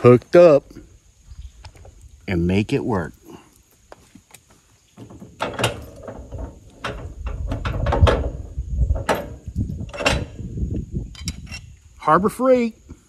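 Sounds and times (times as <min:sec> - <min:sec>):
metallic clicks and clanks: 0:05.0 - 0:10.4
low rattling: 0:05.0 - 0:11.7.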